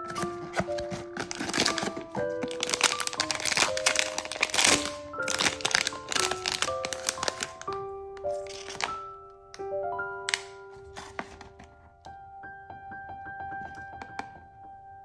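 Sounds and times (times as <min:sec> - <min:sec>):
foil bag crinkling and tearing: 0:00.0 - 0:09.1
background music with held notes: 0:00.0 - 0:15.0.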